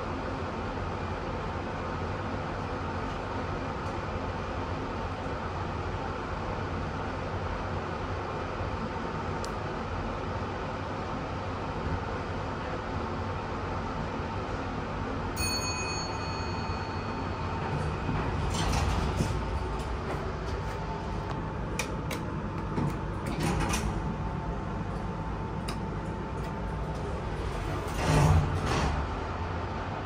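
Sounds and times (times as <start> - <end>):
lift arrival chime: 15.3 - 21.0
lift humming: 15.4 - 30.0
lift door sliding open: 17.3 - 21.8, 22.7 - 24.2, 26.0 - 29.9.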